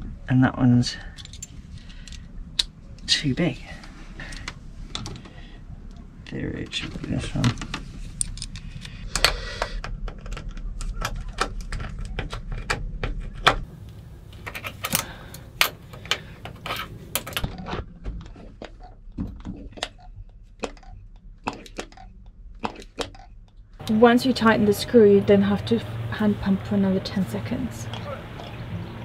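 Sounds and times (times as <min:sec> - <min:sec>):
hand-priming plunger clicking: 0:20.6 - 0:24.0.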